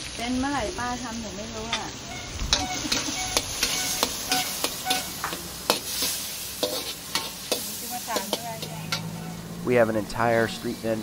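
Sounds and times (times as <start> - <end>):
food sizzling in oil: 0.0 - 11.0
metal turner scraping a wok: 2.5 - 9.6.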